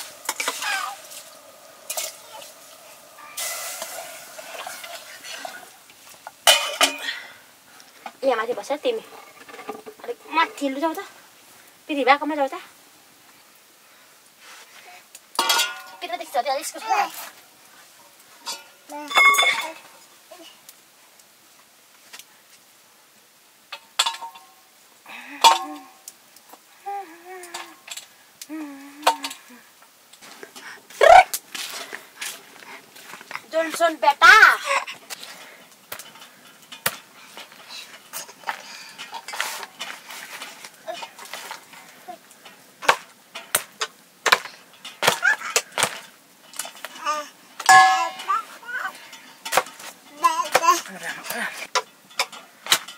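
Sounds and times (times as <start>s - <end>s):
steel plate clattering: 0.0s - 5.7s, 6.3s - 7.3s, 15.4s - 16.2s, 18.4s - 19.8s, 23.8s - 24.5s, 47.6s - 50.0s, 51.7s - 52.9s.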